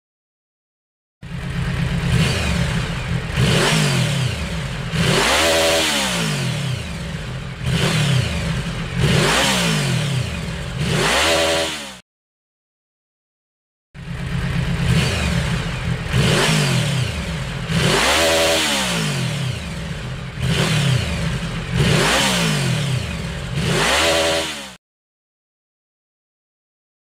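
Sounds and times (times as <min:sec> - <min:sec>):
motorcycle engine revving: 0:01.2 - 0:12.0, 0:14.0 - 0:24.8.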